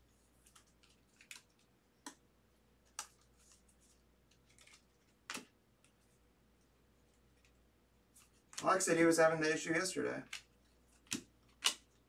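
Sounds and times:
plastic sleeve crinkling: 2.8s - 5.5s.

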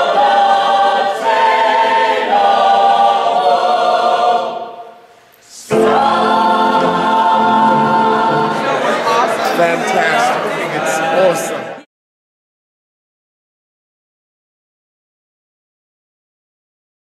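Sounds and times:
ensemble of voices singing: 0.0s - 11.9s.

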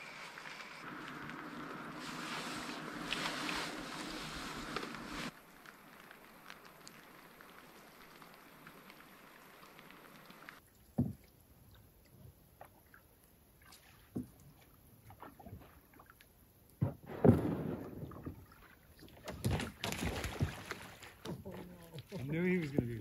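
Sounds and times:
paddle splashing in water: 1.3s - 5.4s, 16.8s - 23.0s
sharp thump: 16.8s - 18.4s.

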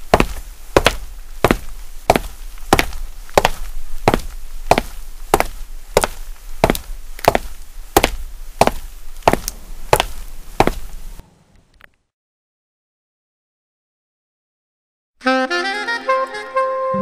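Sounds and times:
footsteps on concrete: 0.0s - 11.2s.

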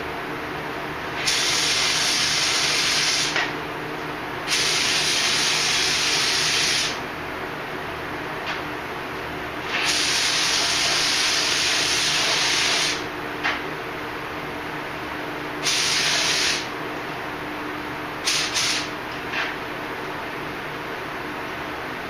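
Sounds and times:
paint spray gun hissing: 9.7s - 13.0s, 15.6s - 16.7s, 18.2s - 18.9s.

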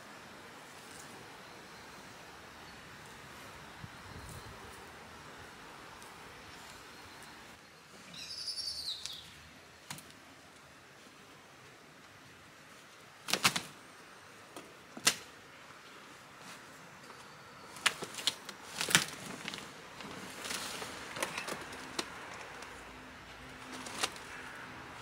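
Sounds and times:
knocks and cracks of wood: 15.0s - 15.3s, 17.8s - 19.6s
scraping and rustling of wood: 17.8s - 22.8s.

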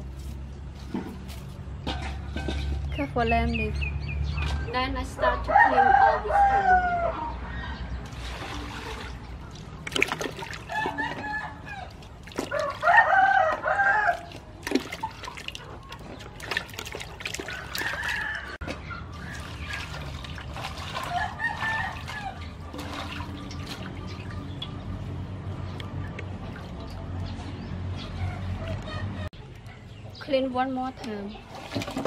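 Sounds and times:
rooster crowing: 5.4s - 7.8s, 10.7s - 14.3s, 17.4s - 18.6s, 21.0s - 22.5s
water splashing and dripping: 8.0s - 27.7s, 31.0s - 32.0s.

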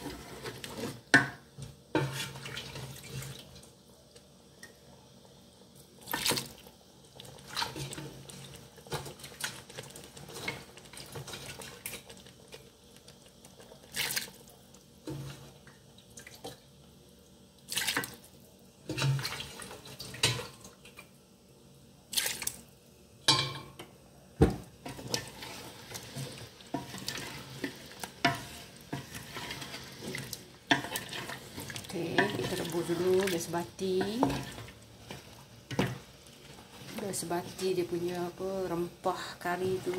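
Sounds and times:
spatula scraping a pot: 0.0s - 1.2s, 1.9s - 3.2s, 24.8s - 37.7s
wet churning of curry: 24.9s - 37.1s.

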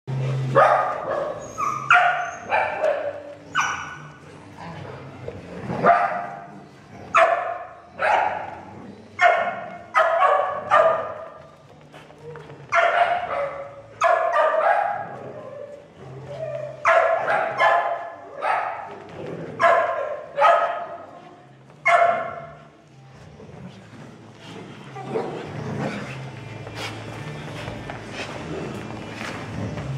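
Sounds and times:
dog barking: 0.6s - 4.0s, 5.8s - 6.5s, 7.1s - 8.6s, 9.2s - 11.2s, 12.8s - 15.2s, 16.8s - 18.9s, 19.6s - 21.0s, 21.8s - 22.6s.

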